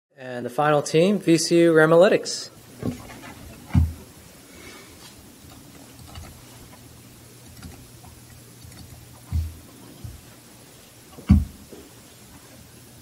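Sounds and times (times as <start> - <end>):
faint low hum: 0.2 - 13.0
small clicks: 7.4 - 9.4.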